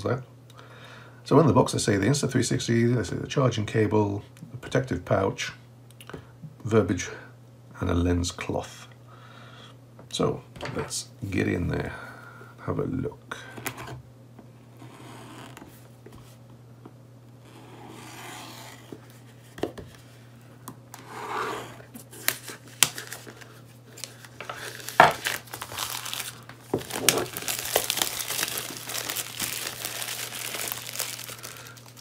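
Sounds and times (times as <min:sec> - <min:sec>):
plastic wrap crinkling and tearing: 0:22.2 - 0:32.0.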